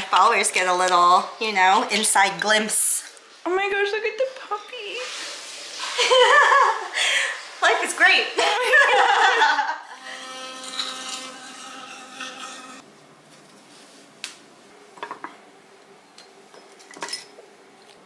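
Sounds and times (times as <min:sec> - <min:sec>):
electric toothbrush buzzing: 0:09.9 - 0:12.8.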